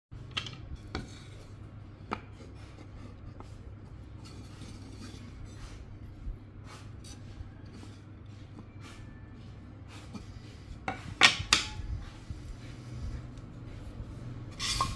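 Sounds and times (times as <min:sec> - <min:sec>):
low steady hum: 0:00.2 - 0:14.9.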